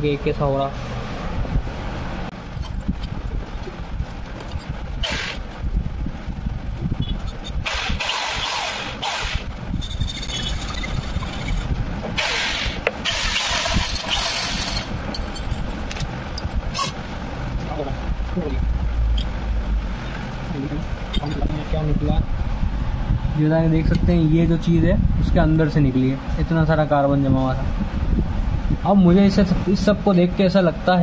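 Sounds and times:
electric drill spinning: 0:05.0 - 0:05.4, 0:07.5 - 0:09.5, 0:12.2 - 0:14.9
wire scraping inside pipe: 0:07.1 - 0:11.7, 0:13.1 - 0:16.1.

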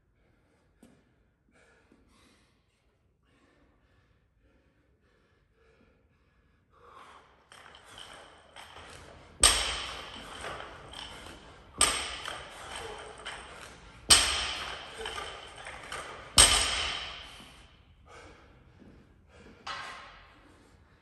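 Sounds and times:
barbell thudding on gym floor: 0:07.5 - 0:17.6.

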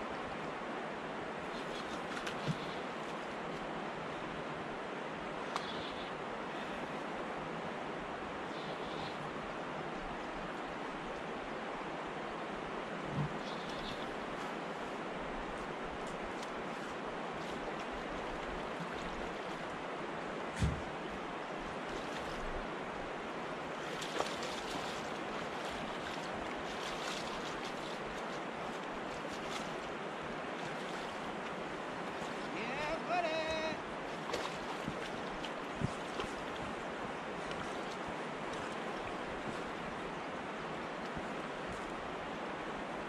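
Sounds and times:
river current rushing: 0:00.0 - 0:43.0
water splashing at edge: 0:23.7 - 0:39.6.

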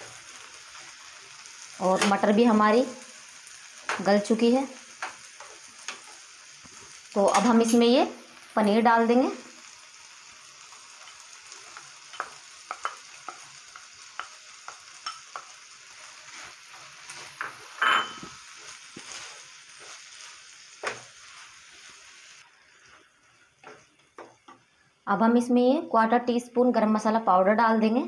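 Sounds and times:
frying hiss: 0:00.0 - 0:28.0
wooden spatula scraping pan: 0:16.2 - 0:21.7.

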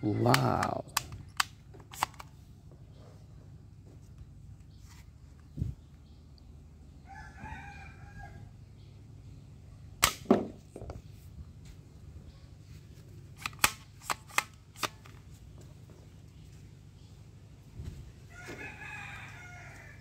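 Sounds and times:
toy gun clicks: 0:00.3 - 0:02.3, 0:13.4 - 0:15.2
toy gun cocking snaps: 0:00.3 - 0:02.3, 0:13.4 - 0:15.2.

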